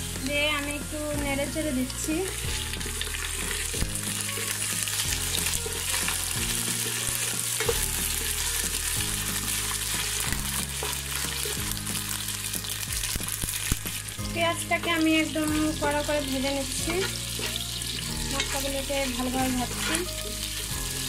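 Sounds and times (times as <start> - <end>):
onions sizzling in oil: 0.0 - 21.0
wooden spatula scraping pan: 14.8 - 20.8.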